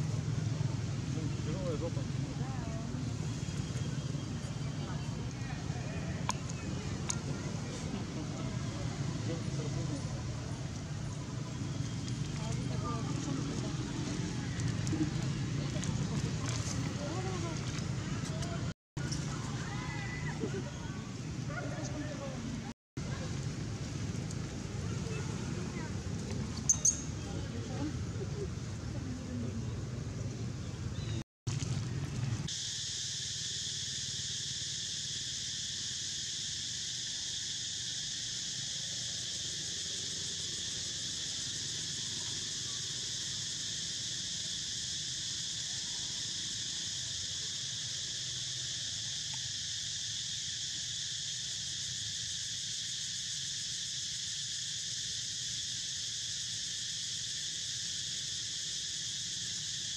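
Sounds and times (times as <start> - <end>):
high-pitched insect chorus: 24.3 - 29.0, 32.4 - 59.9.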